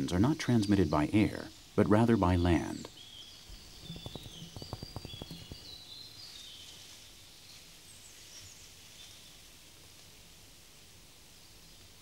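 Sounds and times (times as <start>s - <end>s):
high chirping: 2.6s - 6.7s
tarantula tapping legs: 2.9s - 6.0s.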